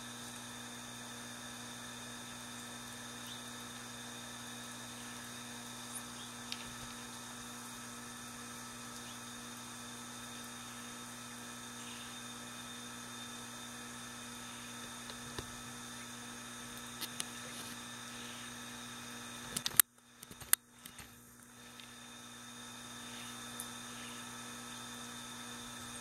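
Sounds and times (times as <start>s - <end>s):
electrical hum: 0.0s - 26.0s.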